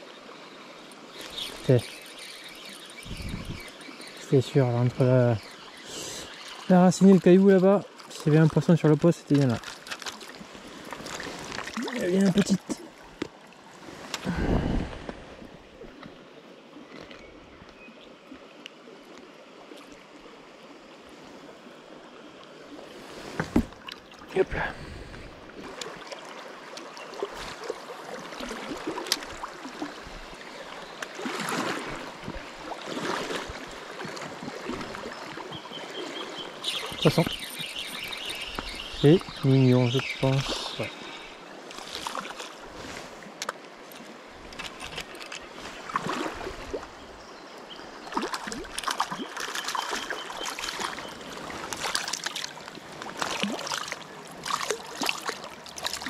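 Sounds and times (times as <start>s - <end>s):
river water flowing: 0.0s - 56.0s
water splashing: 3.0s - 16.1s, 22.7s - 39.5s, 40.2s - 47.0s, 47.9s - 56.0s
water dripping: 11.0s - 13.3s.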